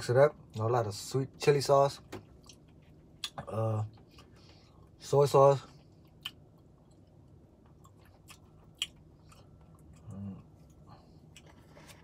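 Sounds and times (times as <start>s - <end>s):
chewing noodles: 5.7s - 12.0s.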